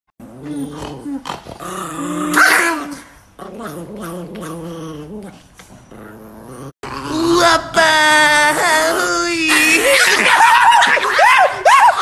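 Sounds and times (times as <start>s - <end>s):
small dog growling: 0.2s - 7.5s.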